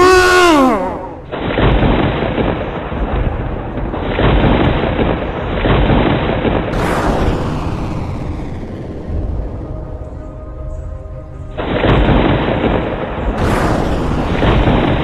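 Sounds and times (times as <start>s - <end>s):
loud cry: 0.0s - 1.3s
explosion-like booms: 0.0s - 9.9s, 11.6s - 15.0s.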